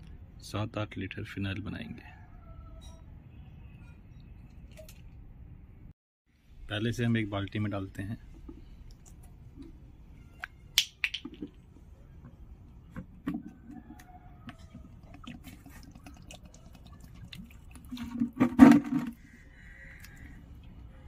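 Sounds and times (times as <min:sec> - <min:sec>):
bottle cap twisting clicks: 0:10.4 - 0:11.6
liquid pouring into plastic bucket: 0:14.7 - 0:19.2.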